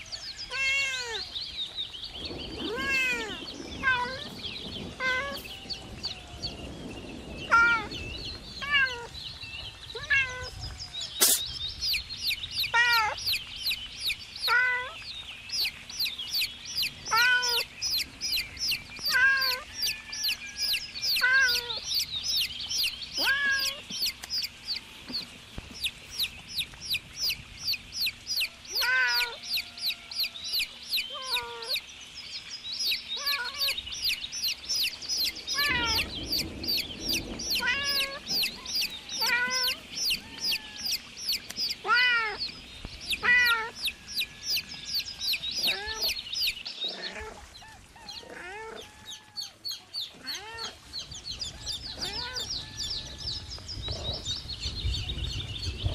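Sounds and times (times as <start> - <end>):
baby chicks peeping: 0.0 - 31.9, 32.5 - 55.9
lower bird call: 9.9 - 15.0.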